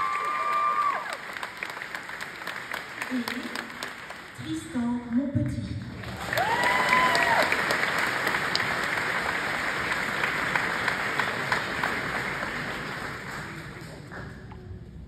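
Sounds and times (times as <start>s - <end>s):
high drawn-out whoop: 0.0s - 1.2s, 6.3s - 7.6s
audience applauding: 0.0s - 4.4s, 6.0s - 14.8s.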